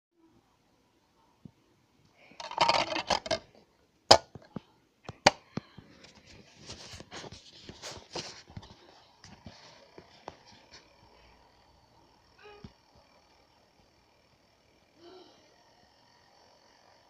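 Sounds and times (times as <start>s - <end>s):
rustling handling noise: 5.9s - 11.0s.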